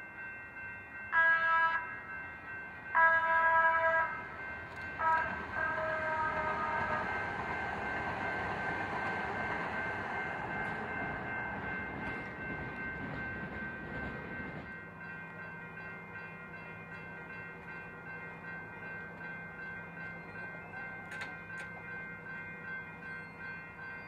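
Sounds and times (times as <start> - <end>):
crossing bell ringing: 0.0 - 24.0
train horn blasts: 1.2 - 1.8, 3.0 - 4.2, 5.0 - 7.5
train rumbling past: 1.3 - 24.0.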